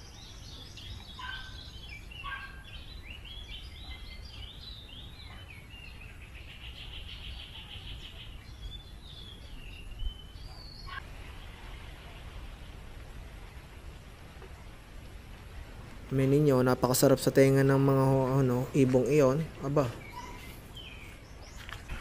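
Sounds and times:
bird trill: 0:00.0 - 0:11.0, 0:17.5 - 0:21.7
birds chirping and singing: 0:00.0 - 0:12.7, 0:16.0 - 0:22.0
low steady rumble: 0:08.0 - 0:22.0.

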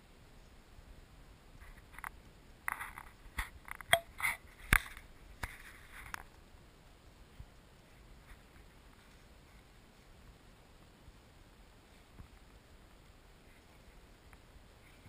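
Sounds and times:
sharp clicks and snaps: 0:02.0 - 0:06.4.

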